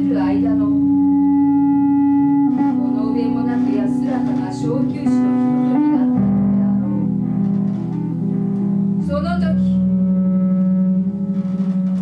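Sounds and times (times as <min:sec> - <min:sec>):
bass guitar low notes: 0:00.0 - 0:12.0.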